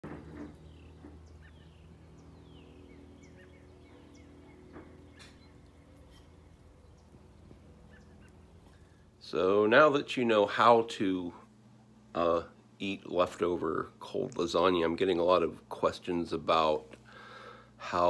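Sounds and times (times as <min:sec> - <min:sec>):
songbirds chirping: 0:00.0 - 0:18.0
steady low hum: 0:00.0 - 0:18.0.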